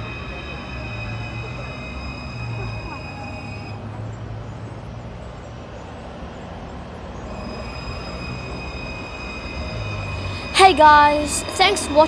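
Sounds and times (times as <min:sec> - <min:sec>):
tram wheels rumbling on rails: 0:00.0 - 0:12.0
high steady whine: 0:07.2 - 0:12.0.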